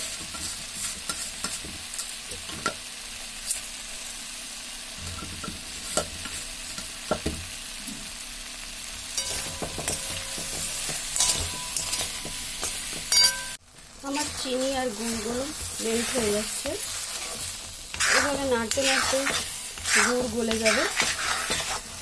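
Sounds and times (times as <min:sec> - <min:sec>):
food sizzling in hot oil: 0:00.0 - 0:22.0
metal spoon clinking on pan: 0:09.2 - 0:13.6.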